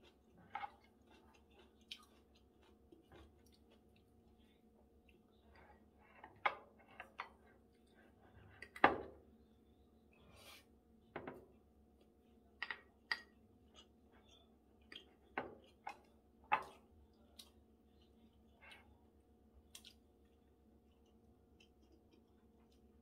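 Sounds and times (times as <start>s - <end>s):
chewing: 0.0s - 6.4s.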